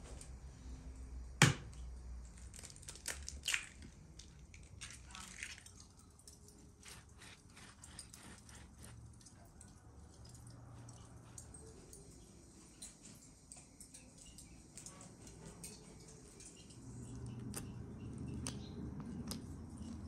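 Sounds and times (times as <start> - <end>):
egg cracking against bowl: 2.4 - 5.8
eggshell breaking: 2.4 - 5.9.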